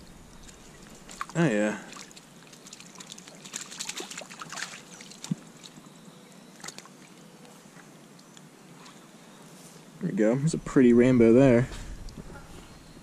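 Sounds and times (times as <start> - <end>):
water splashing and dribbling: 0.3 - 9.0.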